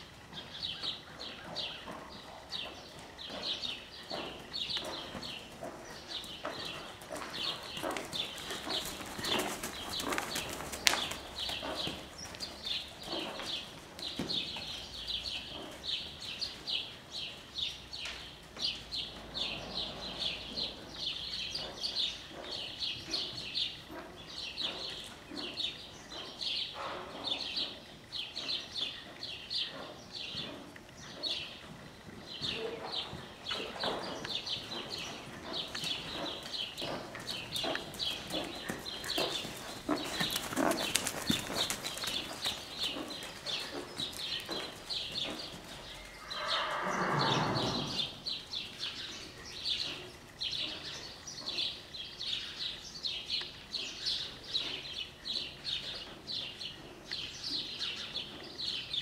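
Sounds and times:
horse snorting: 28.4 - 49.8.

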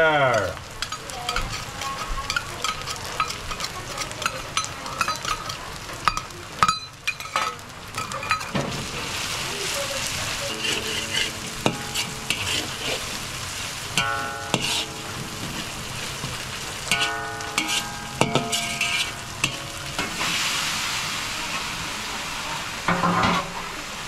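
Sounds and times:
vegetables sizzling in oil: 0.0 - 24.0
metal spoon scraping a wok: 0.8 - 9.3, 10.0 - 20.7
steady ringing: 10.5 - 20.3.

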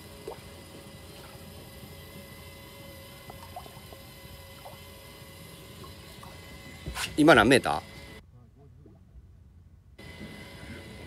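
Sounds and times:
water rumbling against hull: 0.0 - 7.2
faint steady hum: 0.0 - 11.0.

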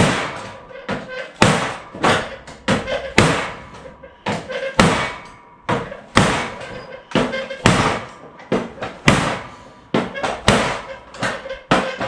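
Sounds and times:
knife stabbing sheet metal: 0.0 - 5.4.

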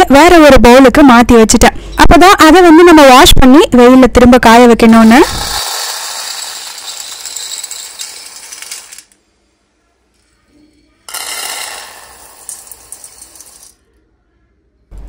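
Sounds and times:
chickpeas poured into steel bowl: 5.2 - 9.0, 11.1 - 13.8.

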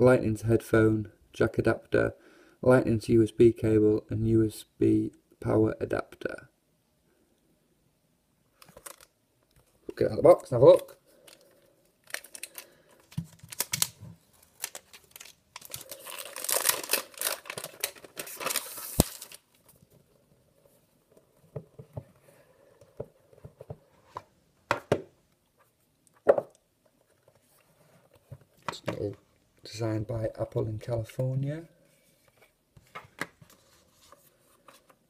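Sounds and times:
cellophane tearing and crinkling: 12.0 - 19.6.

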